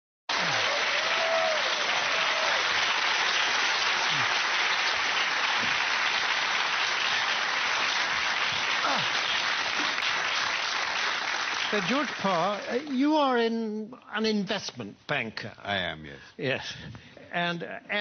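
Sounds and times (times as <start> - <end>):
audience applauding: 0.3 - 13.4.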